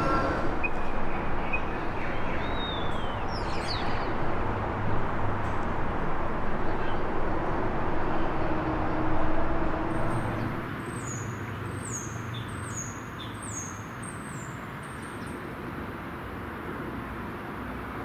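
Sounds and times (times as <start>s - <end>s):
vehicle passing: 0.0s - 10.8s
road traffic hum: 0.0s - 18.0s.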